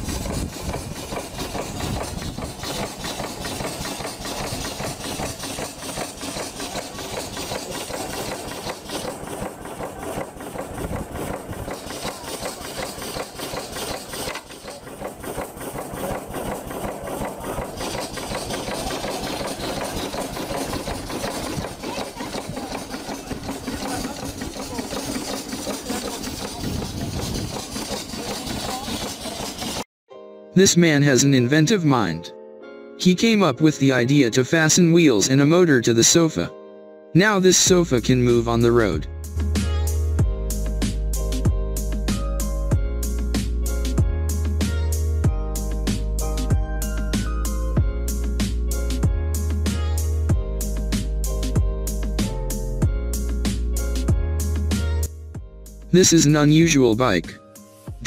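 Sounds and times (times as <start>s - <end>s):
steam engine running rhythmically: 0.0s - 29.9s, 43.0s - 44.0s, 45.6s - 54.7s, 55.7s - 57.4s.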